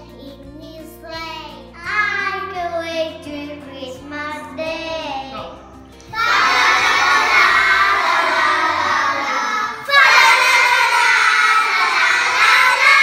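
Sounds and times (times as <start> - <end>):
children singing together: 6.1 - 13.0.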